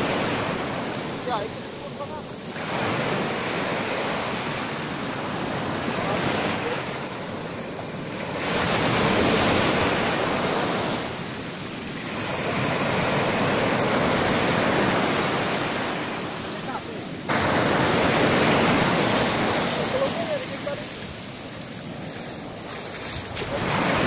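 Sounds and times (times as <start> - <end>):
ocean surf breaking: 0.0 - 24.0.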